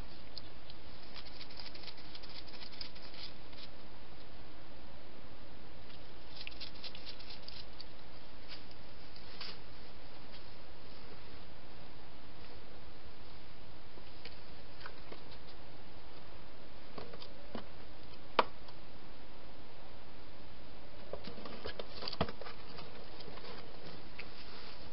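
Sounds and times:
hedgehog clicking and rustling: 0:00.3 - 0:03.7, 0:06.3 - 0:08.0.

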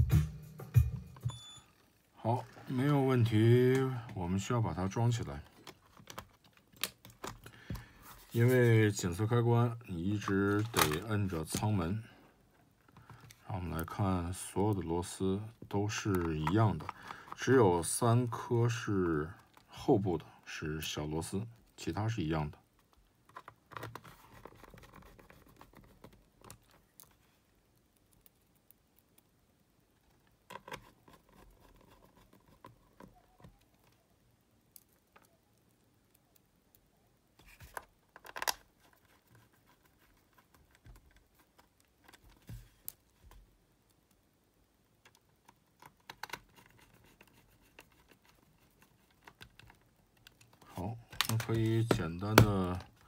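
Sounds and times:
faint scratching: 0:07.9 - 0:12.2, 0:30.5 - 0:34.0, 0:38.8 - 0:43.2, 0:46.4 - 0:53.0.

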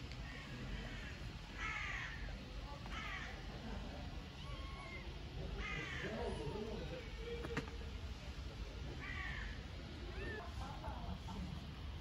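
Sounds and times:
crow cawing: 0:00.3 - 0:02.3, 0:02.9 - 0:03.3, 0:05.6 - 0:06.4, 0:09.0 - 0:09.6.

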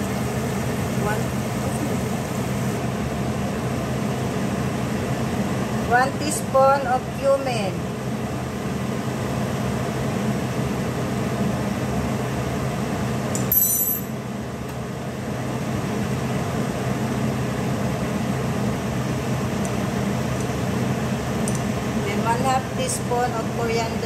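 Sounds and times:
low appliance hum: 0:00.0 - 0:24.0
short metallic clink: 0:13.4 - 0:14.1.

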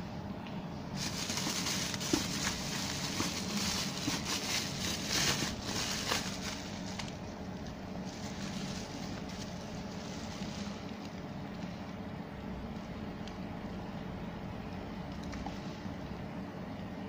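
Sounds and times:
low background rumble: 0:00.0 - 0:17.0
bubble wrap crinkling: 0:00.9 - 0:11.9.

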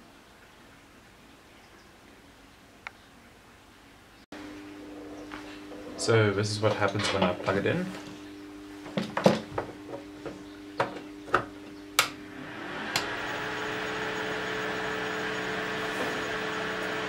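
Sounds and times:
light whirring hum: 0:04.0 - 0:17.0.

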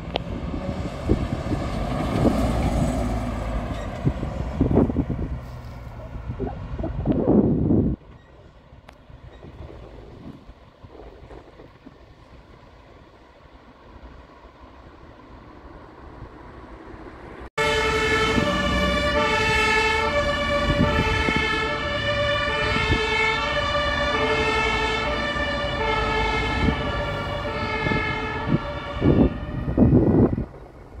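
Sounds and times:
traffic noise: 0:00.0 - 0:31.0
wind buffeting microphone: 0:00.0 - 0:31.0
two-tone emergency siren: 0:17.6 - 0:30.5.

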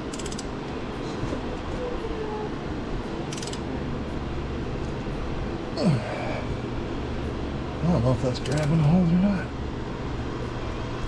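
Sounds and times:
wrench metallic clicks: 0:00.0 - 0:00.5, 0:03.3 - 0:03.6, 0:08.4 - 0:08.9
low rumble of shop noise: 0:00.0 - 0:11.0.

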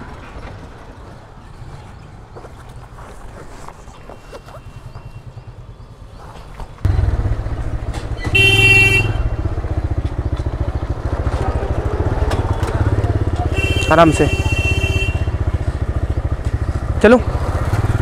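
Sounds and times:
motorcycle engine: 0:04.5 - 0:18.0
motorcycle horn toot: 0:08.1 - 0:09.8, 0:13.4 - 0:15.6.

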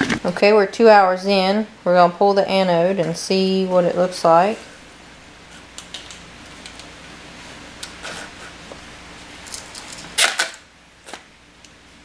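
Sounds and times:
faint steady hum: 0:00.0 - 0:12.0
gloved hands clicking and rustling: 0:05.7 - 0:07.0.

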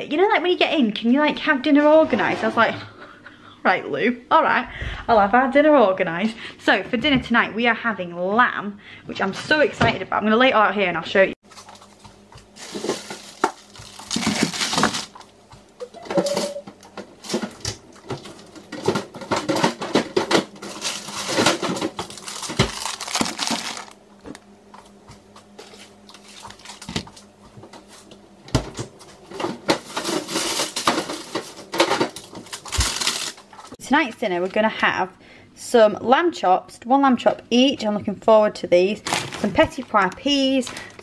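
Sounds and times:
plastic packaging crinkling: 0:11.5 - 0:15.4, 0:18.1 - 0:24.4, 0:25.6 - 0:27.3, 0:29.7 - 0:33.8
packets set down on worktop: 0:20.0 - 0:23.9.

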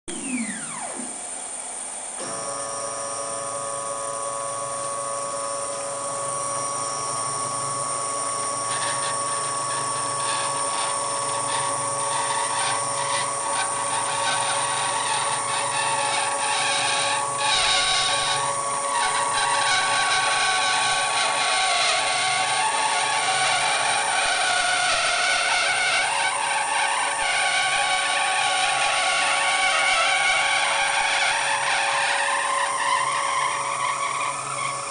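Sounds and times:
drive motors whining: 0:00.1 - 0:26.4.

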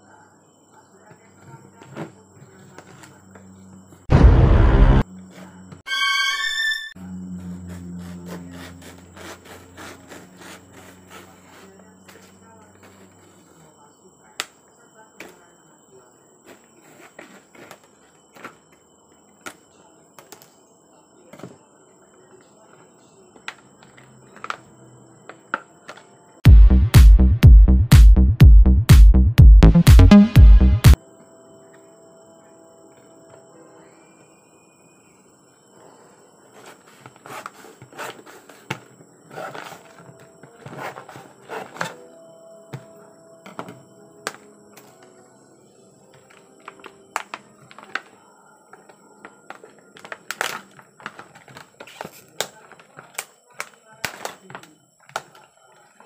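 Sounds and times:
plastic packaging cracking: 0:46.3 - 0:48.2, 0:49.5 - 0:54.4.

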